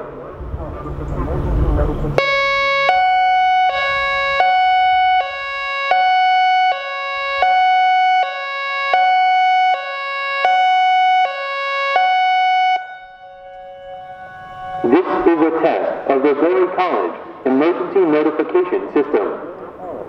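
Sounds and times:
warning siren hi-lo tone: 2.2 - 17.4.

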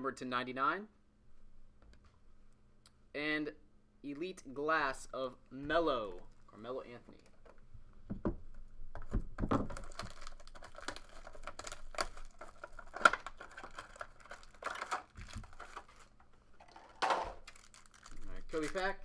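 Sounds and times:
plastic shrink wrap crinkling: 8.9 - 19.0.

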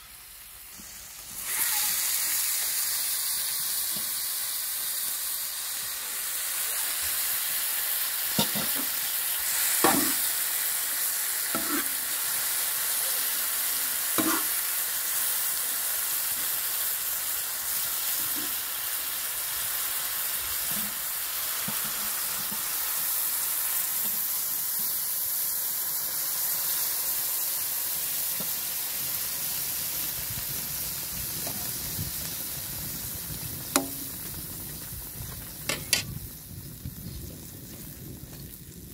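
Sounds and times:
meat sizzling in oil: 0.0 - 38.9
metal spoon scraping griddle: 1.4 - 2.0, 11.5 - 12.0, 14.2 - 14.6.

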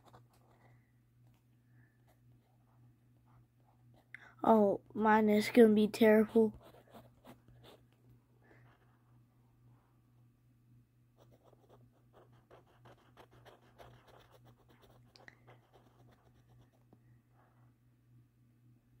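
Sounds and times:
pencil scratching on paper: 6.3 - 7.8, 11.2 - 16.9.

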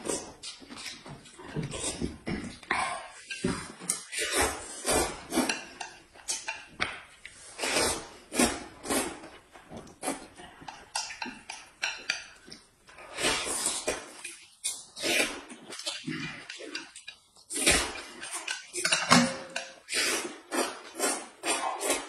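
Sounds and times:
chewing: 0.0 - 22.0
slurping noodles: 1.6 - 6.6, 7.3 - 12.0, 12.9 - 18.9, 19.6 - 22.0
chopsticks clicking on dishes: 5.4 - 7.0, 10.6 - 12.6.

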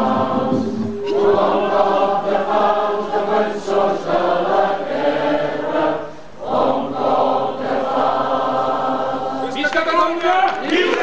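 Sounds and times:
crowd singing in unison: 0.0 - 9.6.

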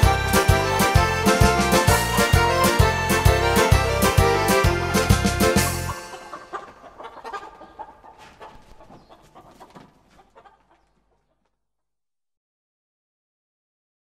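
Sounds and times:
accordion folk band music: 0.0 - 7.7
hens clucking: 0.0 - 11.6.

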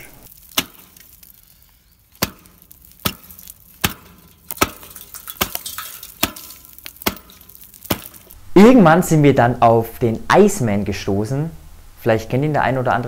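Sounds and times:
hatchet chopping ice: 0.3 - 8.4.

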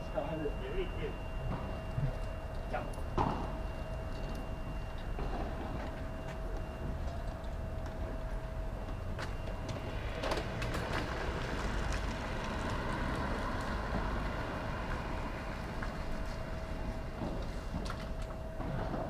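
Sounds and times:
constant faint hum: 0.0 - 19.0
low outdoor rumble: 0.0 - 19.0.

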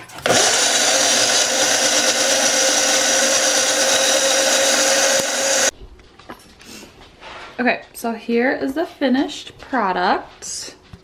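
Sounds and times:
blender running: 0.2 - 5.7.

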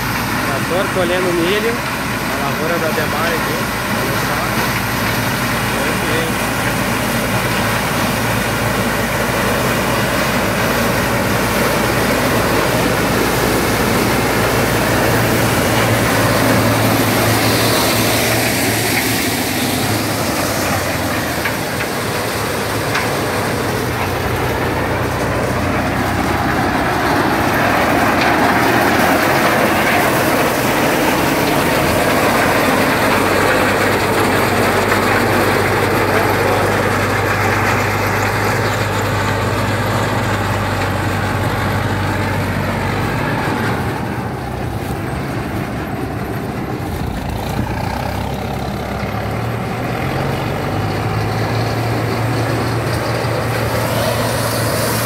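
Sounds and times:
harvesting machinery clatter: 0.0 - 55.0
tractor engine drone: 0.0 - 55.0.

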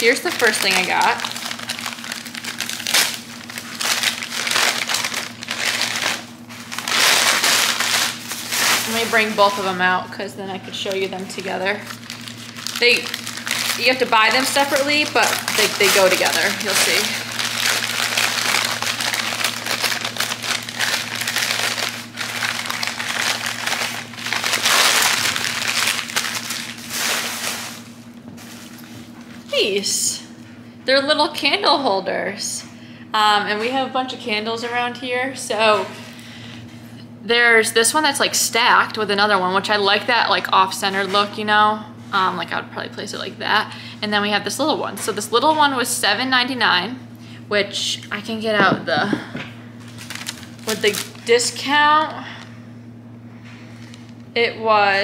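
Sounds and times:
packaging crinkling: 0.0 - 9.8, 10.9 - 29.4, 49.8 - 51.6, 53.6 - 54.3.

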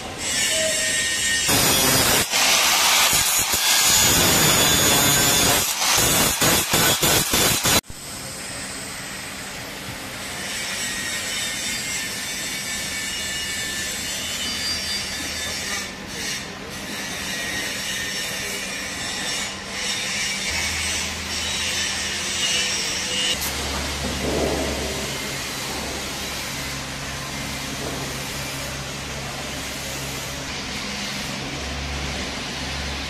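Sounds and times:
angle grinder grinding metal: 0.0 - 7.8, 10.4 - 33.0
welding arc hissing: 0.2 - 7.9.

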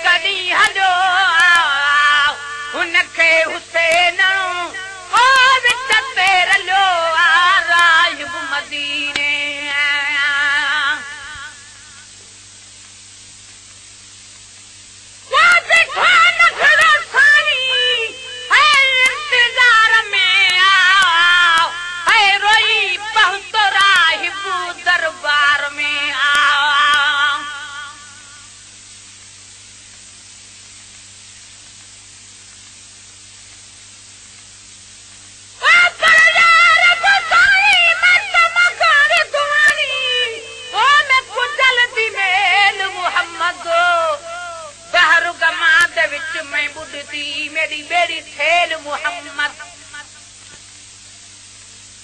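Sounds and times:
person singing with vibrato: 0.0 - 12.1, 15.2 - 28.6, 35.6 - 50.3
faint hiss and hum: 0.0 - 52.0.

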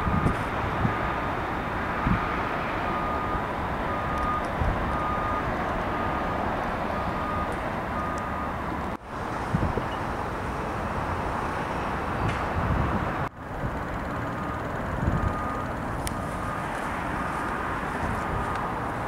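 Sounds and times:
city traffic rumble: 0.0 - 19.0
reversing alarm beeping: 2.0 - 8.6, 15.1 - 16.7.

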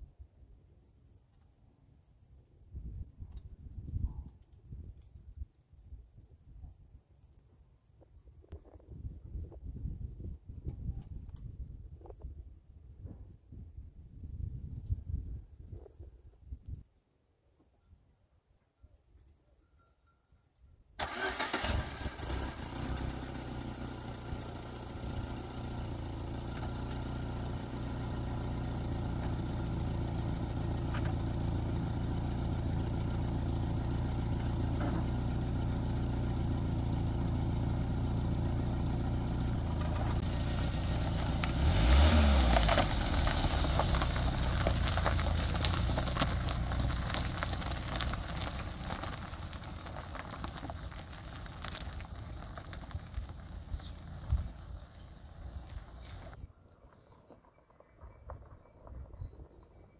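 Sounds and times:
car engine idling and revving: 21.0 - 56.4
tyres crackling over dirt: 21.0 - 59.9.

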